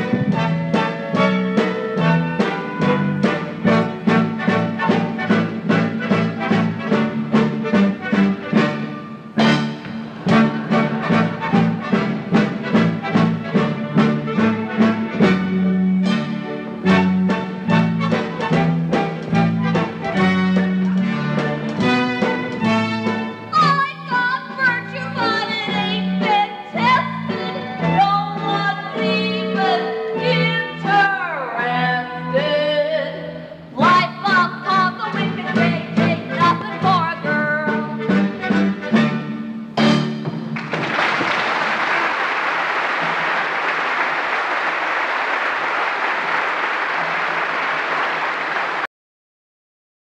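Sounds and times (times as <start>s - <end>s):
theatre orchestra: 0.0s - 48.9s
audience applauding: 40.5s - 48.9s.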